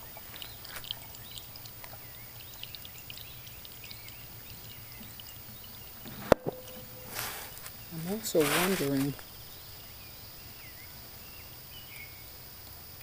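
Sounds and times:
water trickling and gurgling: 0.0s - 12.8s.

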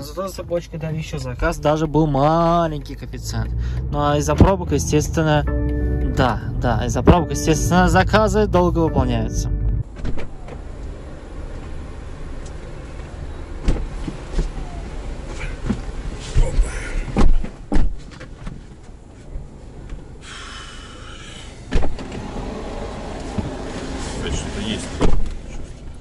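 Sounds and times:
bumps and knocks in car: 15.6s - 18.7s.

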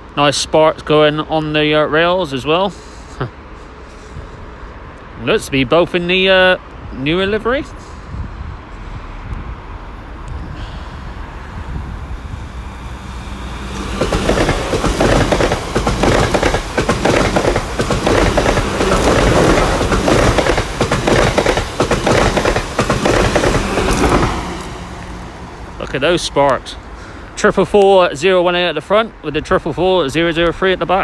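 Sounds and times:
train low rumble: 0.0s - 31.0s
train wheels clattering over track: 12.8s - 26.6s.

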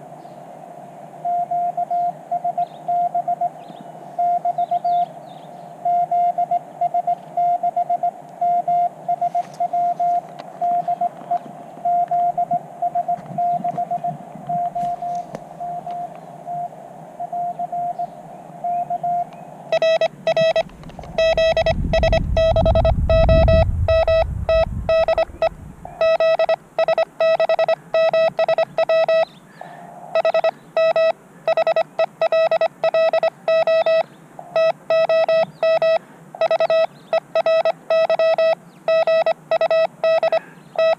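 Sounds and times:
radio hiss: 1.1s - 38.0s, 39.7s - 40.9s
morse code tone: 1.3s - 3.5s, 4.2s - 5.0s, 5.8s - 18.0s, 18.6s - 29.3s, 30.2s - 40.9s
low rumble: 20.4s - 26.2s.

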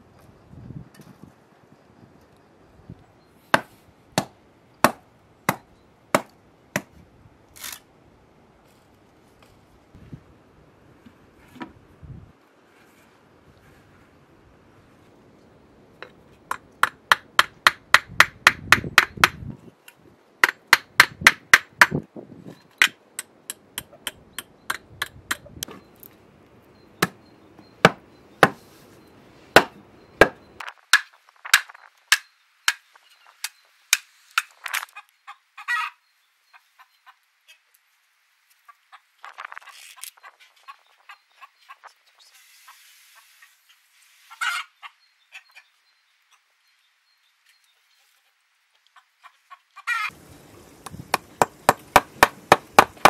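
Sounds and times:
billhook chopping wooden stake: 6.2s - 6.9s, 27.8s - 28.6s, 29.6s - 32.8s, 50.9s - 53.0s.

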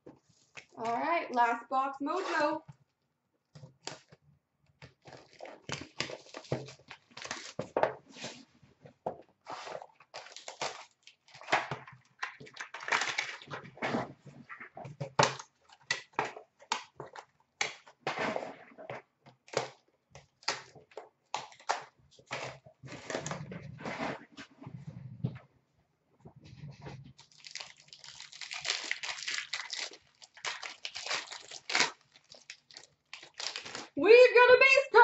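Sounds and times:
wrapper tearing and crinkling: 5.0s - 7.7s, 9.5s - 13.7s, 27.2s - 34.0s.

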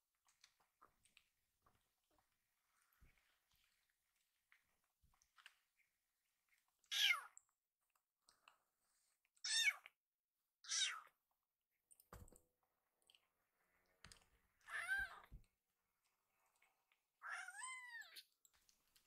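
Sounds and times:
kitten meowing: 9.4s - 9.9s, 10.7s - 11.1s.

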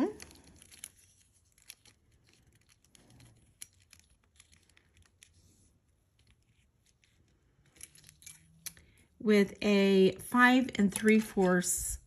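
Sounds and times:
bracelet clicks and rustles: 0.0s - 9.2s.

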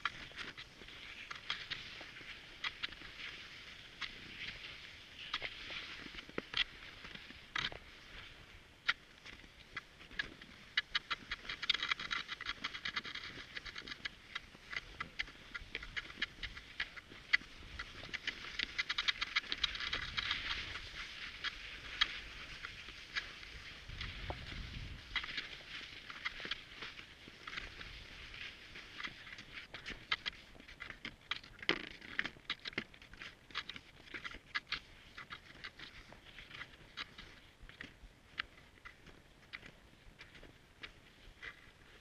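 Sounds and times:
steady snow hiss: 0.0s - 30.5s
skis clicking and scraping on snow: 0.0s - 42.0s.

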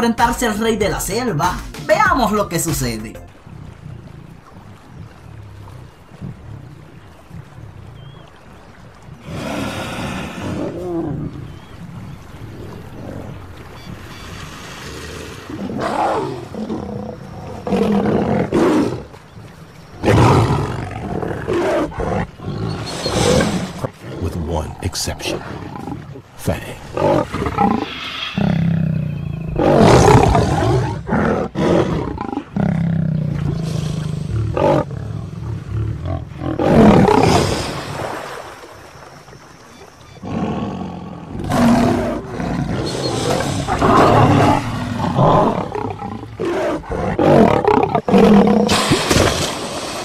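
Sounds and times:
lion roaring and growling: 15.1s - 19.2s, 20.0s - 37.8s, 40.2s - 49.6s.

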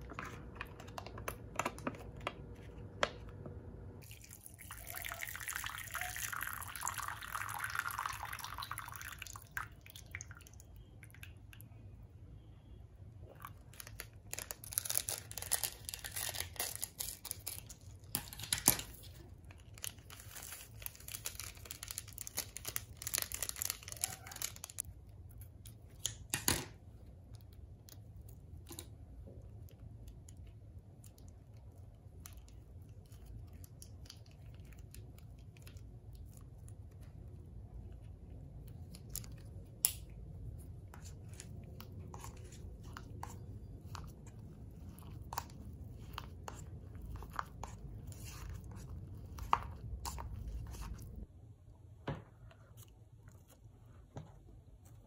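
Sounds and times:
plastic sachets crinkling and tearing: 13.4s - 24.9s.

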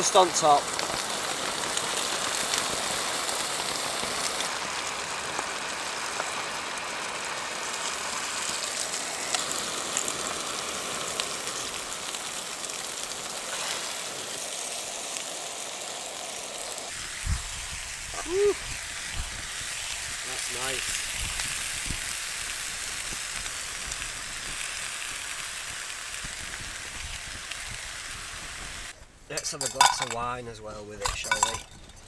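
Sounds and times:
rain pattering on a tent: 0.0s - 17.1s, 20.2s - 29.0s
steak sizzling in a frying pan: 0.0s - 30.2s.

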